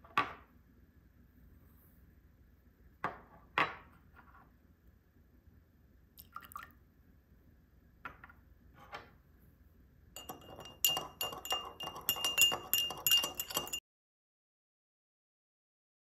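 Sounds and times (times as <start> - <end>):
whisk clinking against bowl: 10.2 - 13.8.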